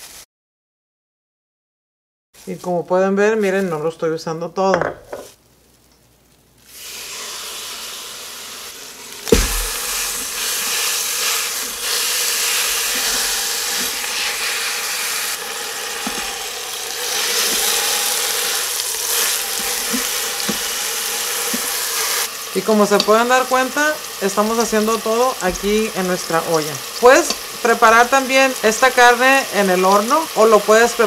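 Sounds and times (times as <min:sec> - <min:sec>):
meat sizzling in hot oil: 0:06.6 - 0:31.0
meat thudding into pot: 0:09.3 - 0:10.3.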